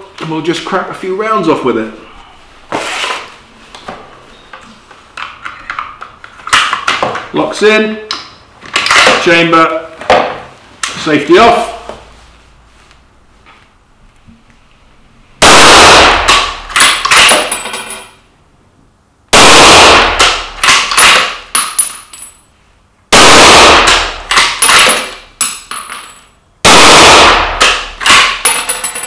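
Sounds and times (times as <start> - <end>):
rifle shots: 15.4 - 17.5, 19.3 - 21.4, 23.1 - 25.1, 26.6 - 28.4.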